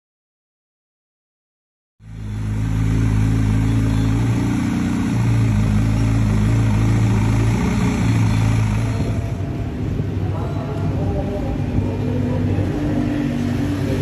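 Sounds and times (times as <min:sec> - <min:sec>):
motorcycle engine idling: 0:02.0 - 0:10.2.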